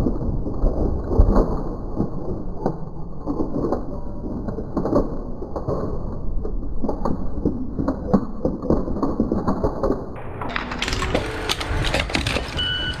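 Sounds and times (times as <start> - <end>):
plastic crunching and cracking: 0.0 - 13.0
truck engine running: 10.2 - 13.0.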